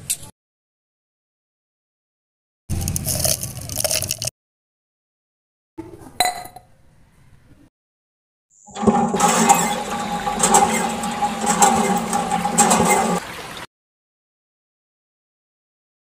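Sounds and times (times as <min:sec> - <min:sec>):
small water pump motor running: 0:08.7 - 0:13.7
water gushing: 0:08.7 - 0:13.7.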